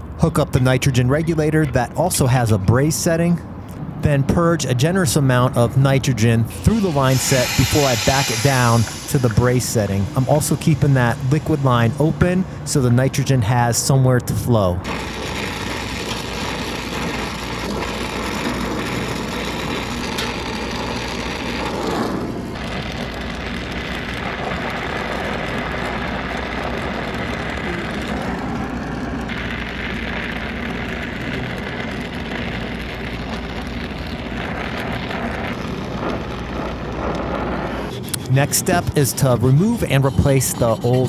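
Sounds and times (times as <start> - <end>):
brazing torch burning: 4.8 - 14.0, 14.8 - 41.0.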